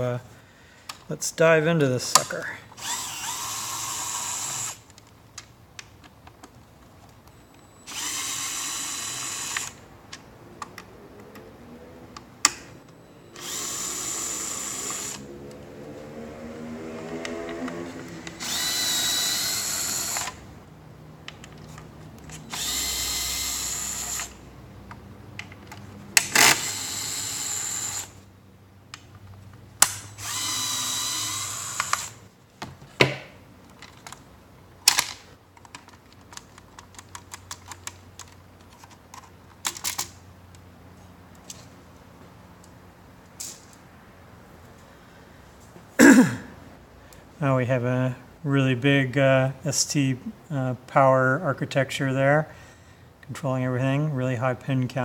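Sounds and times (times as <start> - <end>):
electric screwdriver whirring: 2.8 - 4.9, 7.9 - 9.8, 13.4 - 15.3, 17.0 - 20.4, 22.4 - 24.4, 26.2 - 28.2, 30.2 - 32.2.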